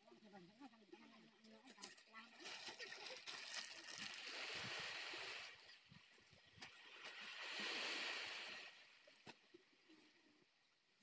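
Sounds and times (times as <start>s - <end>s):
plastic sheet rustling and crinkling: 2.2s - 4.3s.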